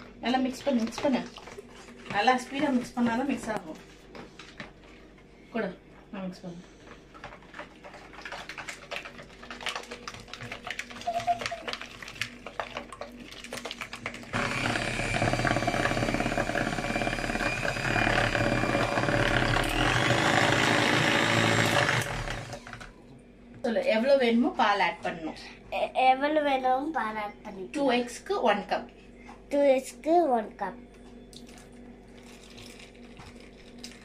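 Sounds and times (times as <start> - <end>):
electric hand mixer whirring: 13.8 - 23.0.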